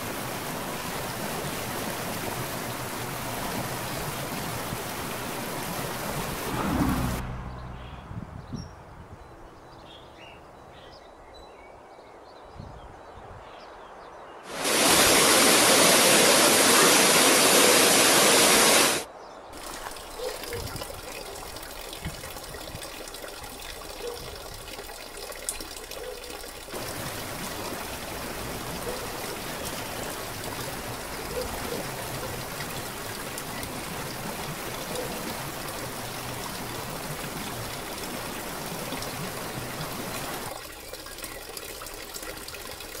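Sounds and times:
small waterfall splashing: 0:00.0 - 0:07.2, 0:14.5 - 0:43.0
water trickling and spattering: 0:00.0 - 0:07.2, 0:14.5 - 0:43.0
loud rushing hiss: 0:14.5 - 0:19.1.

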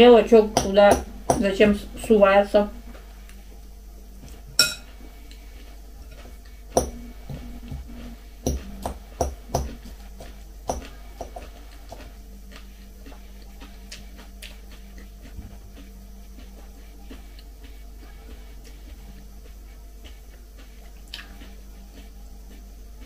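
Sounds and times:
fork clinking against glass bowl: 0:04.6 - 0:04.9.

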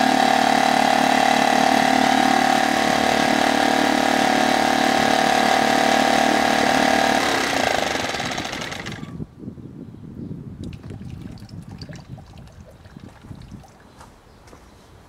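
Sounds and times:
outboard motor running: 0:00.0 - 0:09.2
water sloshing: 0:10.6 - 0:14.0.

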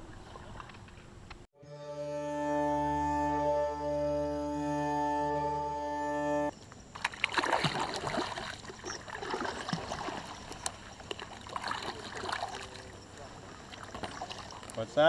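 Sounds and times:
water trickling and splashing: 0:00.0 - 0:01.0, 0:06.5 - 0:15.0.

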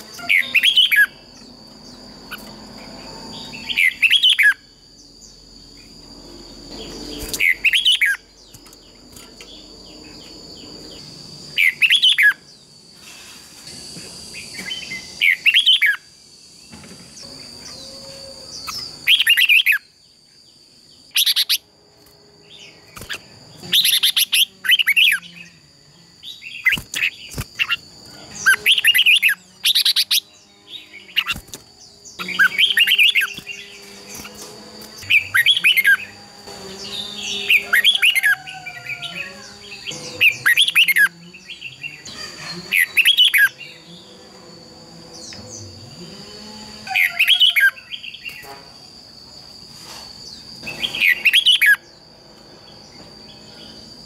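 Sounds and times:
birds singing chirpy phrases: 0:22.5 - 0:25.6, 0:26.3 - 0:44.2.

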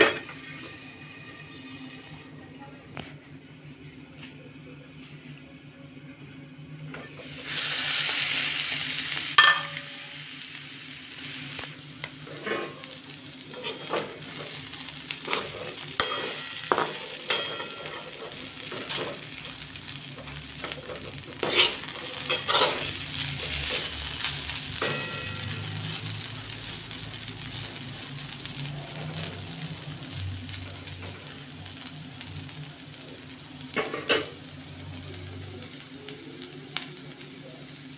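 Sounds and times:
potatoes sizzling in oil: 0:07.0 - 0:37.9
metal spatula scraping pan: 0:13.5 - 0:14.1, 0:21.4 - 0:23.0.

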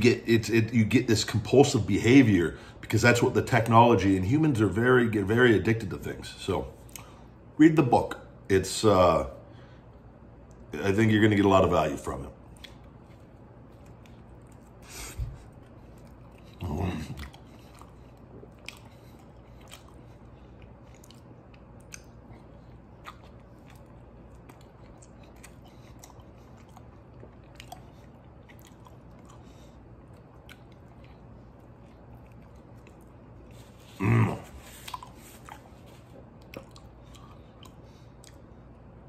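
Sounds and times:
man chewing food: 0:12.4 - 0:39.0
man grunting: 0:34.0 - 0:34.6.

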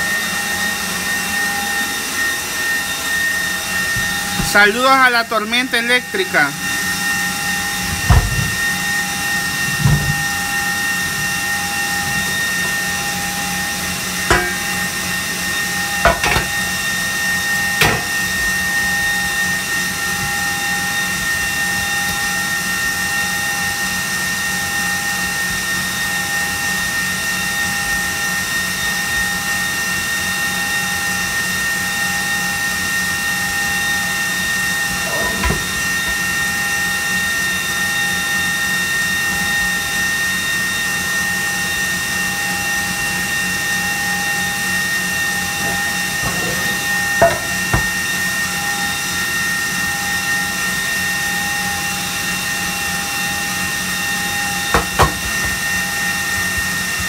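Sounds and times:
electric mixer whining: 0:00.0 - 0:57.0
metal cake pans knocking: 0:14.3 - 0:14.7, 0:16.1 - 0:16.5, 0:45.6 - 0:48.0.

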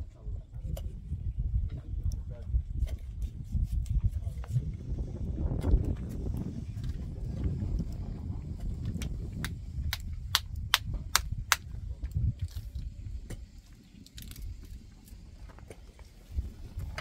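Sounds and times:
low rumble: 0:04.2 - 0:15.5.

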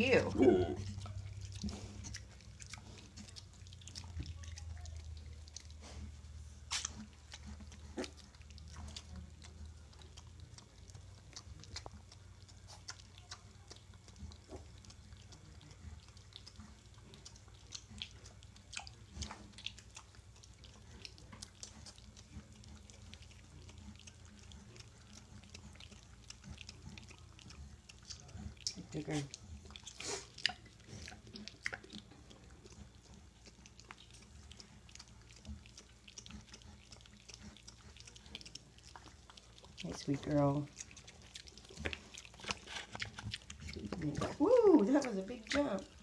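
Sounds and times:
low steady hum: 0:00.0 - 0:46.0
piglets suckling: 0:00.0 - 0:46.0.

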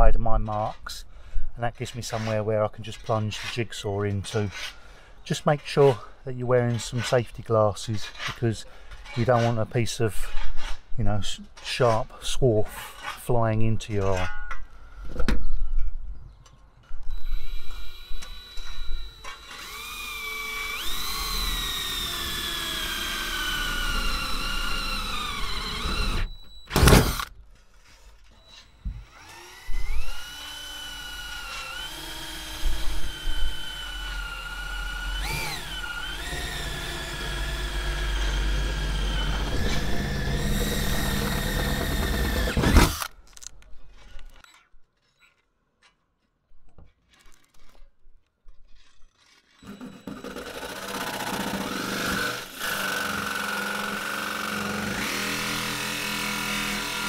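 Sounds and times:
power drill whining through metal: 0:17.0 - 0:44.4, 0:48.6 - 0:57.0.

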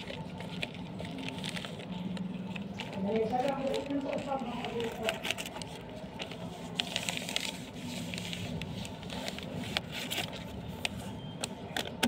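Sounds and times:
paper crackling and scraping: 0:00.0 - 0:12.0.

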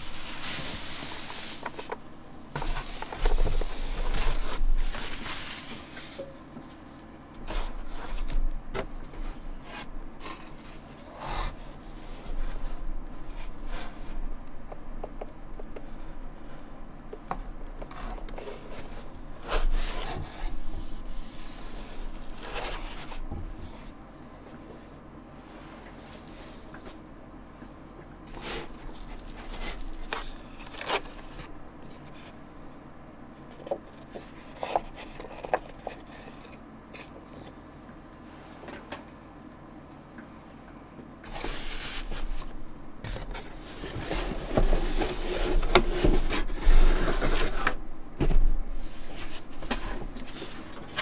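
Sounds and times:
tablet sliding against cardboard box: 0:41.3 - 0:42.4, 0:43.6 - 0:47.7.

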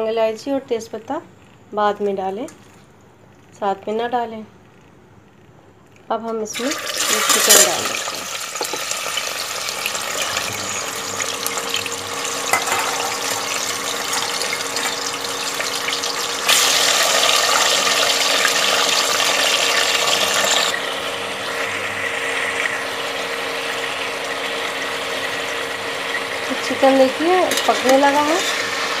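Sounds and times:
chicken sizzling in hot oil: 0:06.6 - 0:29.0.

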